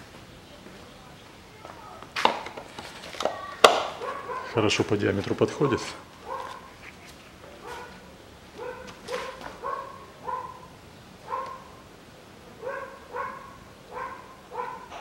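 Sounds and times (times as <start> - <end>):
dog barking: 3.9 - 4.8, 5.5 - 6.8, 7.6 - 11.8, 12.6 - 15.0.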